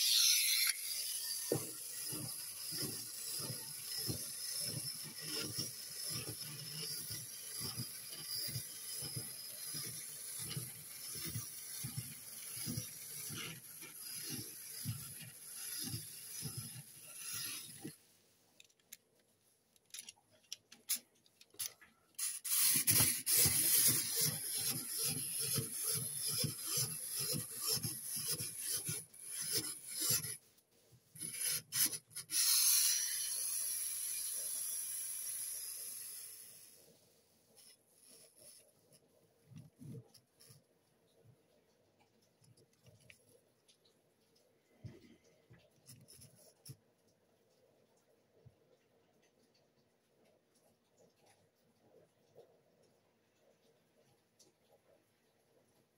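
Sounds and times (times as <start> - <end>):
ratcheting clatter of gears: 0.0 - 18.0, 19.9 - 30.4, 31.2 - 36.7
toy mechanism whirring: 0.0 - 18.0, 19.8 - 30.4, 31.1 - 43.8, 44.4 - 46.8.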